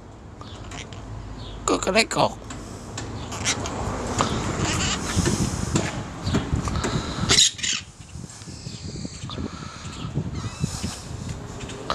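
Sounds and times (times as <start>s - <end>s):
parrot calling: 3.2s - 3.7s, 7.2s - 7.9s.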